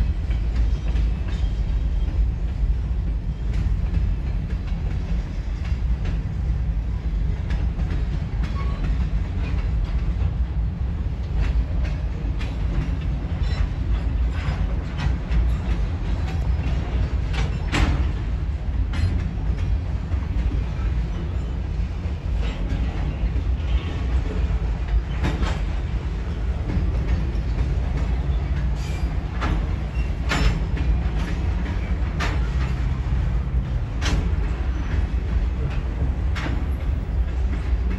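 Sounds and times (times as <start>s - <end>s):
train wheels rumbling on rail: 0.0s - 37.9s
wheels clanking over rail joints: 0.0s - 37.9s.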